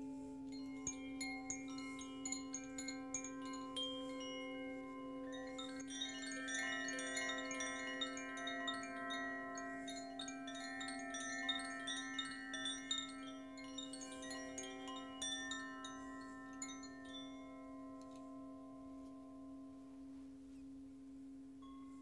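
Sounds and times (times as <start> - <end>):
metal wind chimes ringing: 0.0 - 19.9, 21.6 - 22.0
steady low ringing tone: 0.0 - 22.0.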